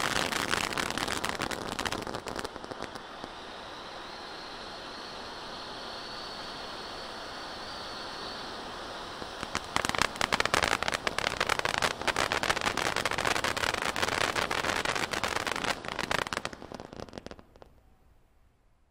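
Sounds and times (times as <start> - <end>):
firework crackling: 0.0 - 3.4, 9.0 - 17.9
firework fountain hissing: 0.0 - 17.9.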